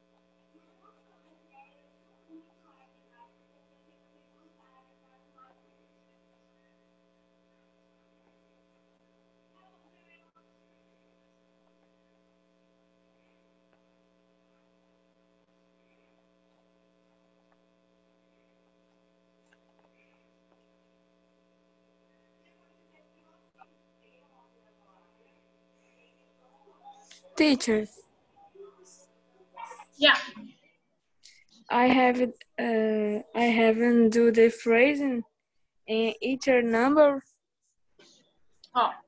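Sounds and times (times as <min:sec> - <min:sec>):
faint electrical hum: 0:00.0 - 0:39.0
faint clicks: 0:18.9 - 0:20.7.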